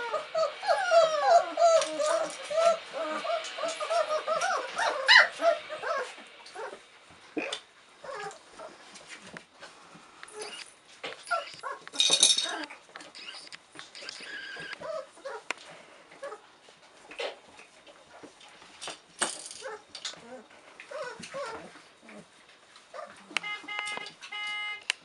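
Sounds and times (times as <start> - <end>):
puppies whimpering and yipping: 0.0 - 6.8, 8.0 - 8.9, 11.2 - 15.5, 19.6 - 23.7.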